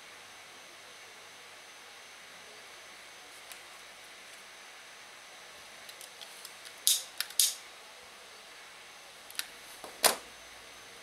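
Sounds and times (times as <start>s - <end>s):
matches clicking: 6.7s - 7.6s.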